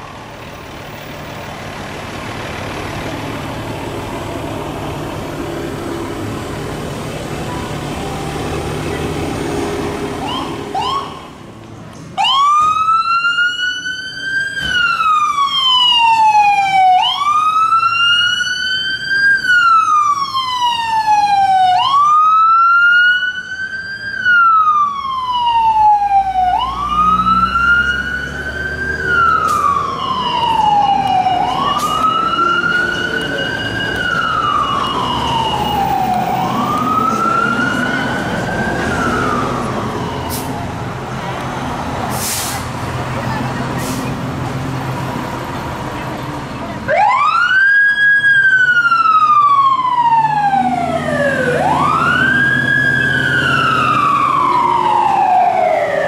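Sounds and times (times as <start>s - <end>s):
vehicle engine and road noise: 0.0s - 56.0s
emergency siren wailing: 2.0s - 11.6s, 12.2s - 42.5s, 46.7s - 56.0s
siren chirp: 10.2s - 11.4s, 12.2s - 40.7s, 46.9s - 56.0s.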